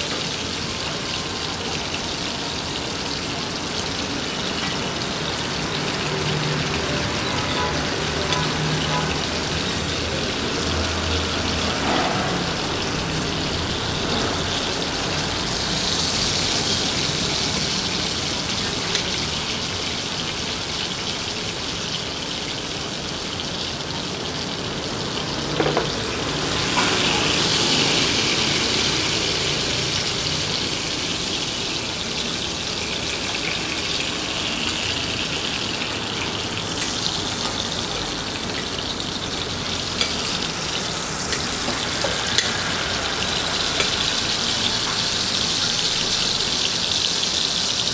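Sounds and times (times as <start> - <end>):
steak sizzling in a pan: 25.5 - 47.9.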